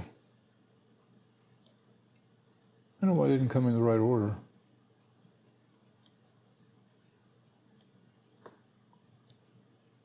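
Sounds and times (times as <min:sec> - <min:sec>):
computer mouse clicks: 0:01.5 - 0:02.3, 0:03.1 - 0:03.3, 0:05.9 - 0:06.2, 0:07.7 - 0:09.5.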